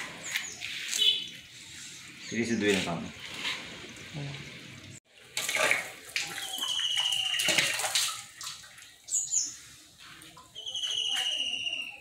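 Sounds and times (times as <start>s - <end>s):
water splashing into a bucket: 2.4s - 11.8s
high trilled whistle: 10.6s - 12.0s.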